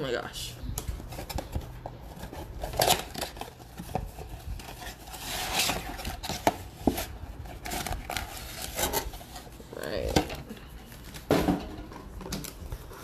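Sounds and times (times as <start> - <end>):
cardboard scraping and rustling: 1.0 - 10.2.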